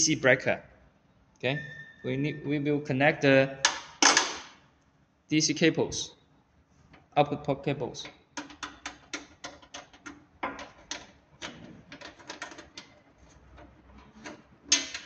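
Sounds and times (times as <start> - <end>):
cable clicking and rattling: 8.0 - 15.0.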